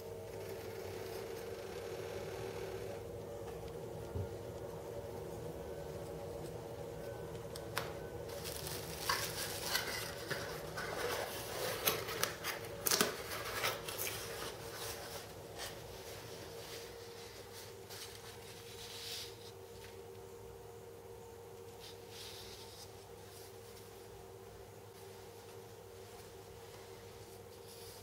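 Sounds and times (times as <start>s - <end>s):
steady faint hum: 0.0s - 28.0s
bubble wrap crinkling: 7.1s - 20.0s.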